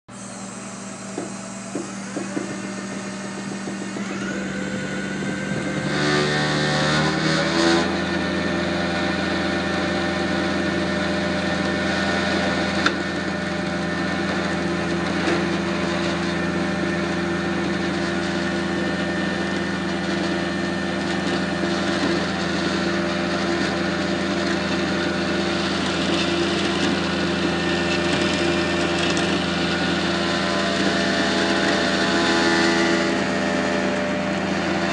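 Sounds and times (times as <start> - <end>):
truck engine running: 0.2 - 8.7.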